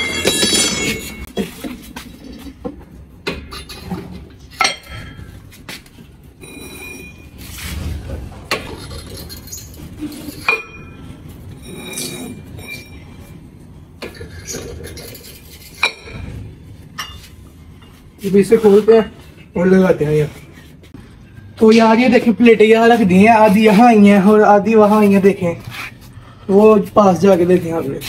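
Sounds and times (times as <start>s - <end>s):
metal weight plates clinking: 0.0s - 1.3s.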